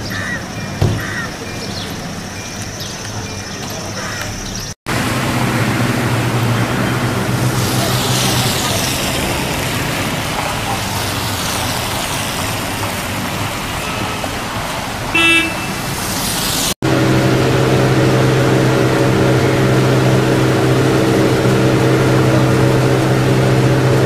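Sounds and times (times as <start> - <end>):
road traffic: 0.0 - 24.0
low engine drone: 4.9 - 14.0, 16.6 - 24.0
car horn toot: 13.8 - 14.4, 15.1 - 15.9.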